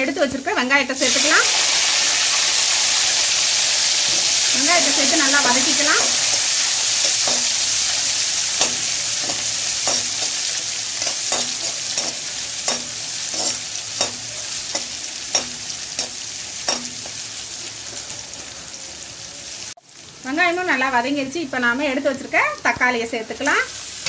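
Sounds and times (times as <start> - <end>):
onions sizzling in oil: 0.0 - 24.0
metal spoon knocking pan: 7.0 - 7.6, 8.5 - 10.4, 11.0 - 17.2.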